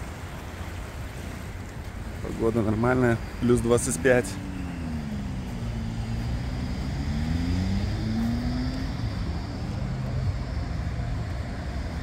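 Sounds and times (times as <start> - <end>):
city traffic rumbling: 0.0 - 12.0
vehicle motor whine: 2.8 - 12.0.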